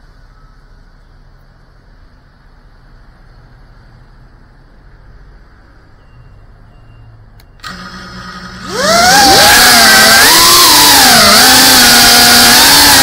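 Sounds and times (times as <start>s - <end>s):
drone motors whining: 7.6s - 13.0s.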